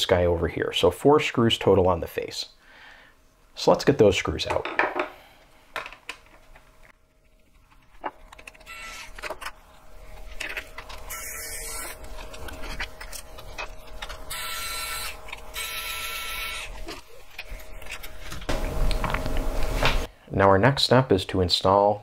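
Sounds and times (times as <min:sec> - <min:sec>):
screwdriver scraping screws: 0:08.3 - 0:09.5, 0:10.4 - 0:17.1.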